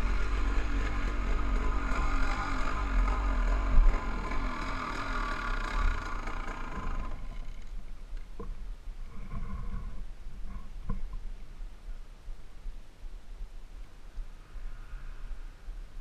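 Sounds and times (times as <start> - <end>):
motorcycle engine at low revs: 0.0 - 8.6
wind rumble on microphone: 6.9 - 16.0.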